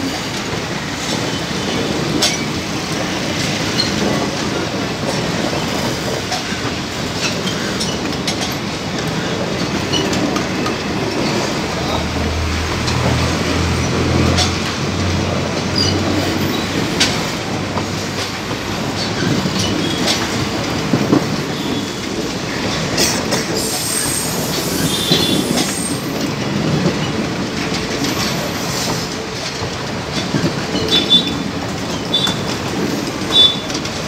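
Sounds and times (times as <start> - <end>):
clickety-clack over rail joints: 0.0 - 34.0
train wheels rumbling on rail: 0.0 - 34.0
high wheel squeals: 23.6 - 26.1.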